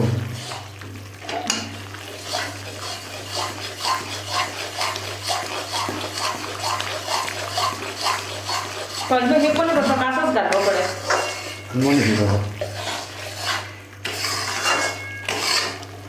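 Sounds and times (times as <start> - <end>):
metal spatula scraping a pan: 0.0 - 0.8, 1.4 - 15.9.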